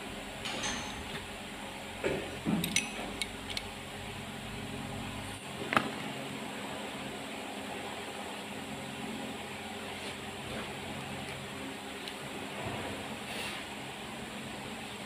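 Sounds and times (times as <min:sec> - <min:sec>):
workshop hum: 0:00.0 - 0:15.0
metal tools clinking on engine: 0:02.6 - 0:03.7.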